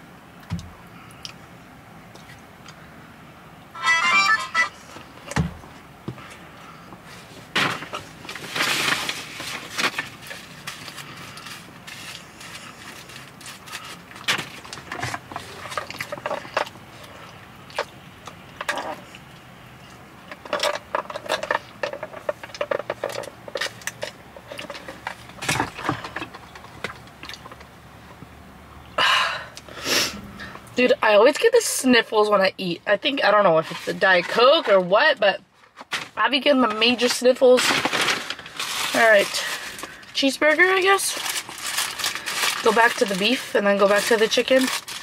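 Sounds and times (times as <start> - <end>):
rustles: 4.8 - 17.9.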